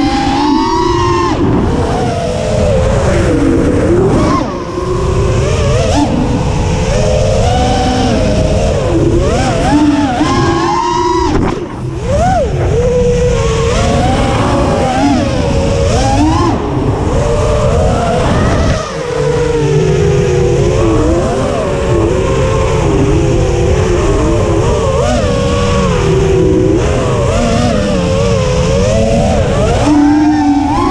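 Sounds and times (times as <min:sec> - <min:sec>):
drone motors whining: 0:00.0 - 0:30.9
low rushing rumble: 0:07.3 - 0:21.1.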